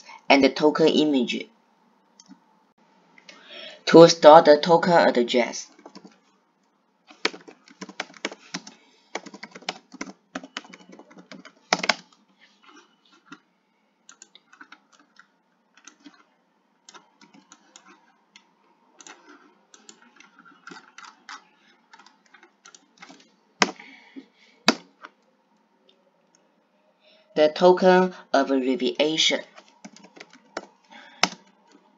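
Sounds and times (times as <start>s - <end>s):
typing on computer keyboard: 5.7s - 6.2s, 7.1s - 12.2s, 14.1s - 16.3s, 16.9s - 23.8s, 29.6s - 31.9s.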